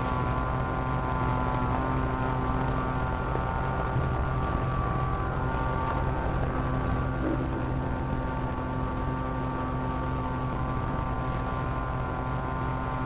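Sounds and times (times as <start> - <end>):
electric machine hum: 0.0 - 13.0.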